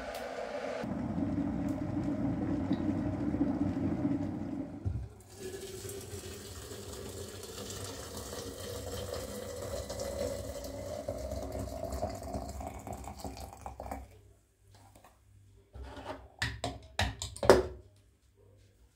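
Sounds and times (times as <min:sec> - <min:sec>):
water running: 0:00.0 - 0:14.1.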